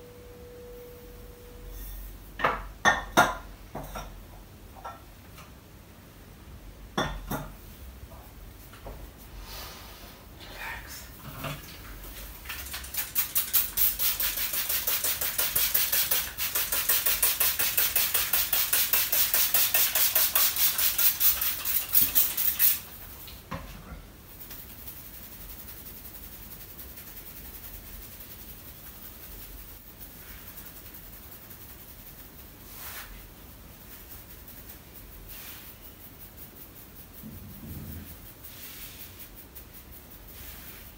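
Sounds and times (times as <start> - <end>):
hands rubbing hair rhythmic rustle: 11.7 - 23.5, 24.2 - 40.9.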